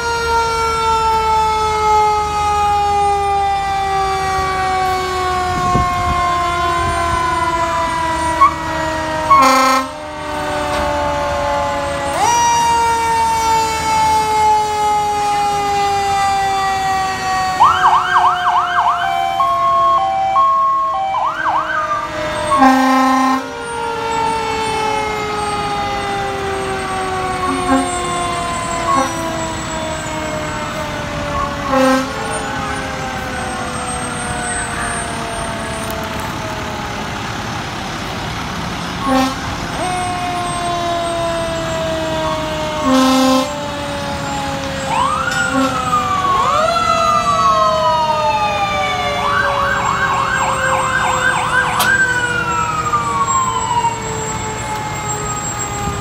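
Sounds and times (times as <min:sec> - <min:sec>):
siren warbling yelp: 0:00.0 - 0:37.0, 0:39.0 - 0:56.0
fire truck sirens wailing: 0:00.0 - 0:56.0
truck air horn blasts: 0:09.3 - 0:10.5, 0:22.5 - 0:23.6, 0:27.4 - 0:28.2, 0:28.9 - 0:29.3, 0:31.6 - 0:32.8, 0:39.0 - 0:39.7, 0:42.8 - 0:43.5, 0:45.4 - 0:45.9.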